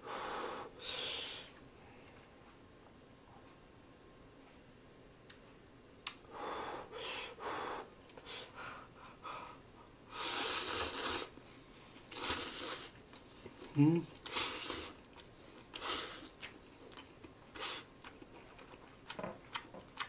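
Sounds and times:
breathy puffs blowing on noodles: 0.0s - 1.5s, 10.1s - 11.4s, 12.1s - 13.0s, 14.3s - 15.0s, 15.8s - 16.3s, 17.6s - 17.9s
slurping noodles: 10.2s - 11.4s, 12.1s - 13.0s, 14.2s - 15.0s.

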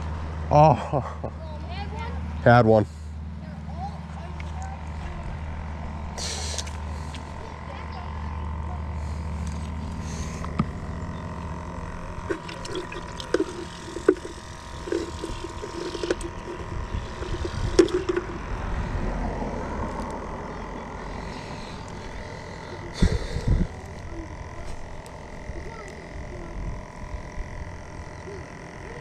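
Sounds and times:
low steady rumble: 0.0s - 28.1s
fishing reel clicks and knocks: 12.3s - 18.5s.

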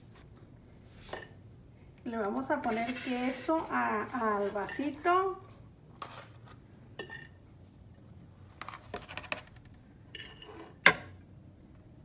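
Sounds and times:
dishes clinking: 7.0s - 7.4s, 10.1s - 11.1s.

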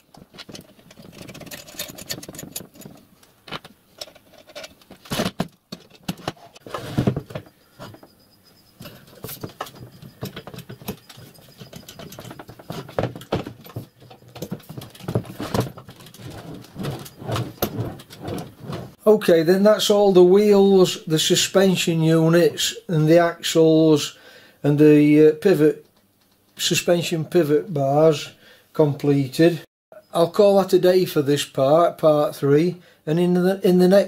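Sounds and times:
metal parts clinking and knocking: 0.0s - 8.0s, 8.8s - 18.5s.

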